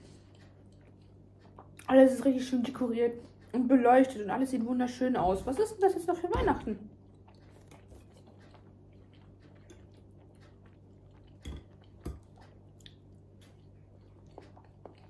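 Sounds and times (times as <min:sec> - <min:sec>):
faint chewing: 0:00.0 - 0:03.6, 0:06.9 - 0:15.0.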